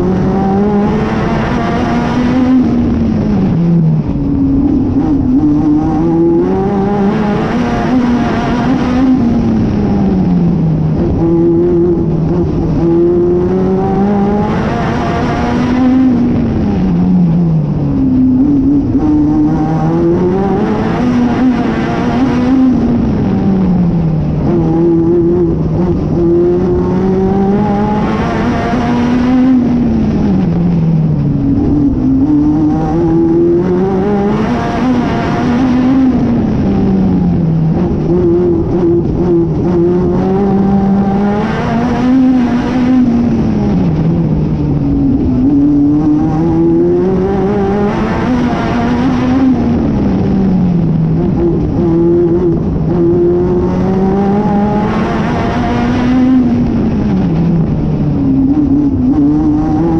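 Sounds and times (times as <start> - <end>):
race car engine revving: 0.0 - 59.9
wind and tyre noise: 0.0 - 59.9.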